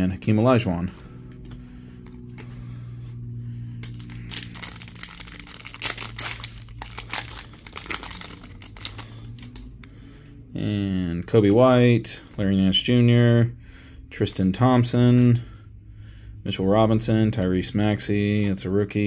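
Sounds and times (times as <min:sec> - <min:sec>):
steady low hum: 0:00.0 - 0:19.0
wrapper crinkling and tearing: 0:03.8 - 0:09.7.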